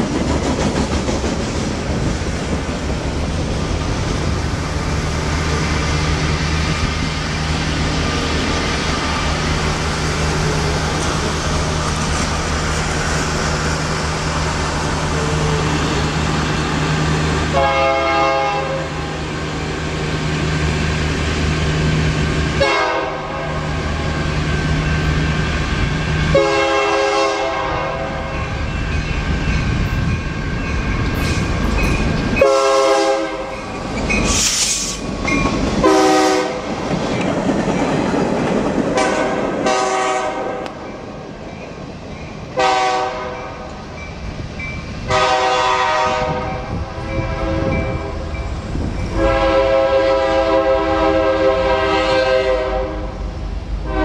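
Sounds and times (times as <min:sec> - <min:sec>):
diesel locomotive engine drone: 0:00.0 - 0:54.0
train wheels and cars passing: 0:00.0 - 0:54.0
train air horn blasts: 0:17.5 - 0:19.1, 0:22.6 - 0:23.7, 0:26.3 - 0:28.4, 0:32.4 - 0:33.5, 0:35.8 - 0:36.7, 0:39.0 - 0:40.7, 0:42.6 - 0:43.4, 0:45.1 - 0:48.2, 0:49.1 - 0:53.2.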